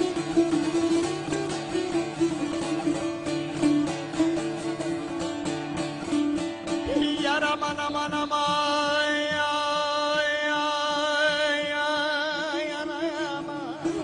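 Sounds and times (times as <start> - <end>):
plucked lute: 0.0 - 14.0
man singing long wordless note: 6.8 - 14.0.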